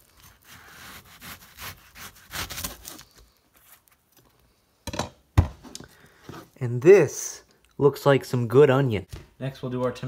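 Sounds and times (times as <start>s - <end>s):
knife slicing onion: 0.0s - 3.2s.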